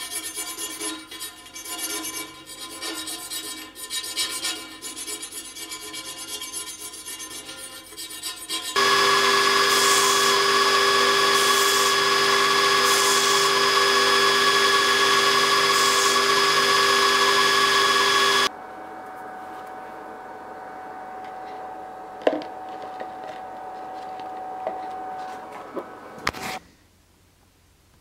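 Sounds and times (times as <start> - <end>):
belt grinder whining: 8.8 - 18.5.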